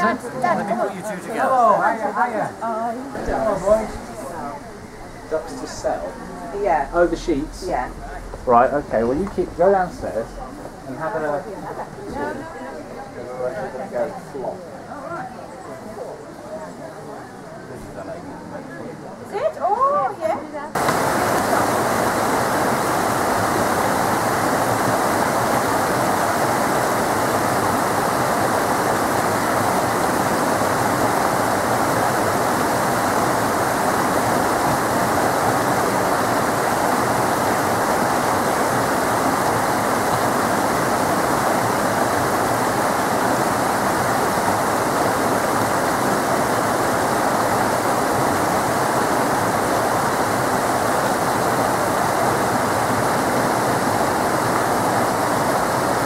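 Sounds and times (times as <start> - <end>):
water rushing over rocks: 3.1 - 12.7, 20.8 - 56.0.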